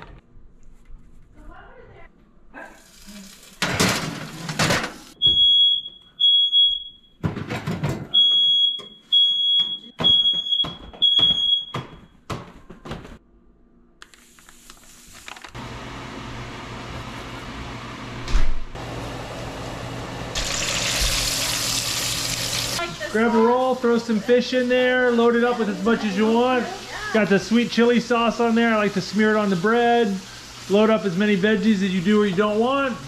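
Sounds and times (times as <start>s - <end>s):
smoke alarm beeping: 5.2s - 7.2s, 8.1s - 12.2s.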